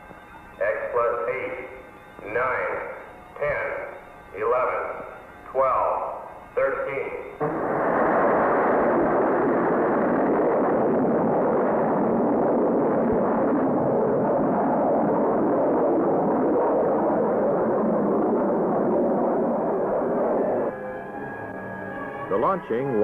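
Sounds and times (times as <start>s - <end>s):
rocket engine roaring: 6.6s - 22.9s.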